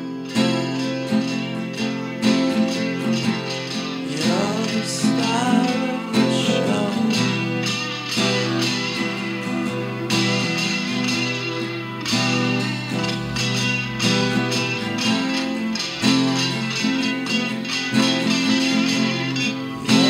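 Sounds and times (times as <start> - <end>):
song with strummed guitar: 0.0 - 20.0.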